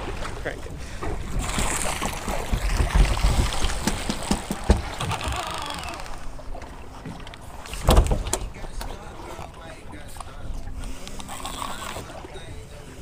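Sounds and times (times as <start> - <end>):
water sloshing against hull: 0.0 - 13.0
wind on microphone: 1.2 - 4.1
sharp knocks: 2.0 - 5.2.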